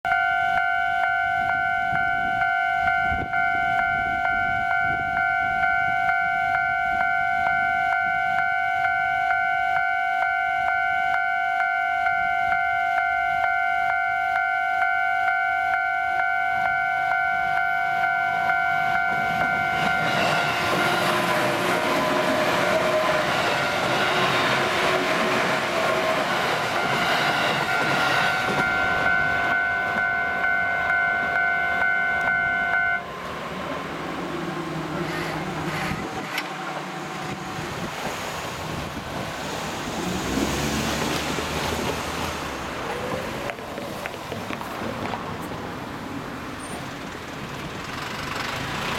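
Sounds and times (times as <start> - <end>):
level crossing bell ringing: 0.1 - 20.1, 27.7 - 33.0
electric train passing: 0.1 - 48.9.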